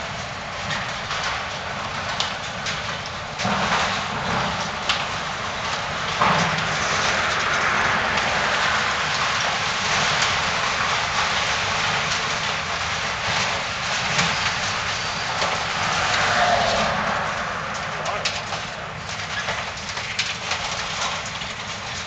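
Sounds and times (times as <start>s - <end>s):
rubble rattling and crunching: 8.2s - 16.2s, 17.6s - 22.0s.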